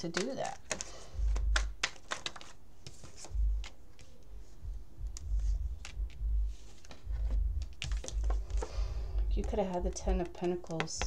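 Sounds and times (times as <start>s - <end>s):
cards clicking and snapping: 0.0s - 4.1s, 7.8s - 8.7s, 10.2s - 11.0s.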